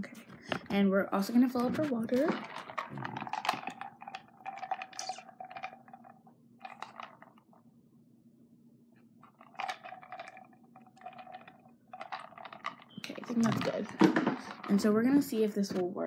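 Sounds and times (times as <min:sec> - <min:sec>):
plastic items crackling and clicking: 0:01.9 - 0:07.6, 0:09.2 - 0:15.8.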